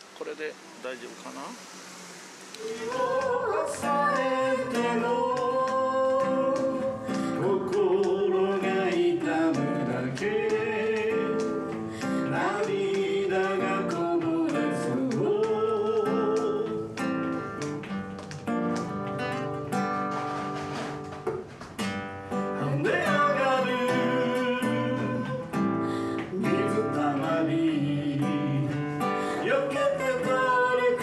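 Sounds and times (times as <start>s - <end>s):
person singing long notes: 2.6s - 17.1s, 22.6s - 31.0s
strummed acoustic guitar: 2.6s - 31.0s.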